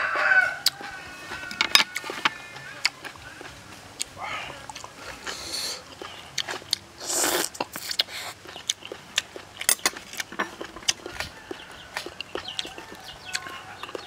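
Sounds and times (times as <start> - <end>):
wet chewing and lip smacks: 0.6 - 14.0
person slurping noodles: 7.0 - 8.4.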